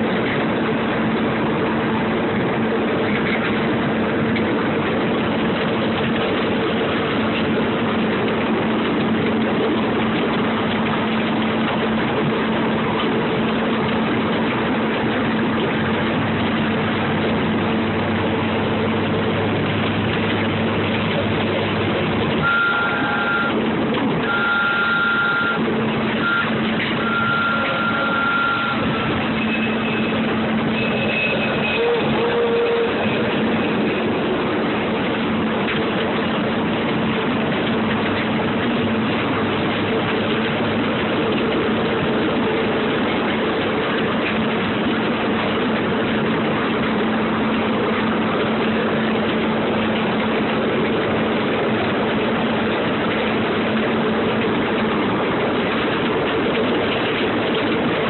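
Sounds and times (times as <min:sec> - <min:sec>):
ride-on train engine humming: 0:00.0 - 0:58.0
high steady tone: 0:22.4 - 0:23.6, 0:24.2 - 0:34.1.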